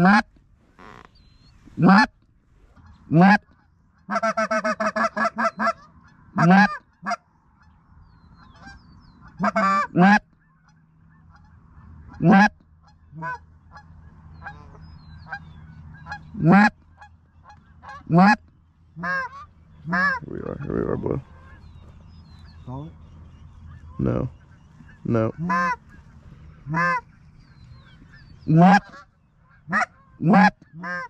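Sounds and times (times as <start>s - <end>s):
goose call honks and clucks: 0.0s - 7.8s, 8.4s - 23.0s, 23.6s - 31.0s
geese honking: 0.0s - 31.0s.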